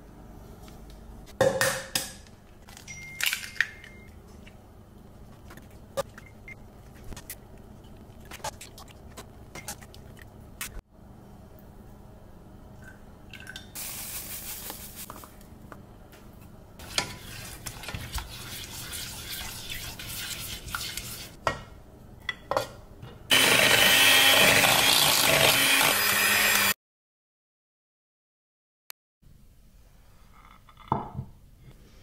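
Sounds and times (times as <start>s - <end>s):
spatula scraping steel saucepan: 16.8s - 21.4s
electric hand mixer whirring: 23.3s - 26.8s.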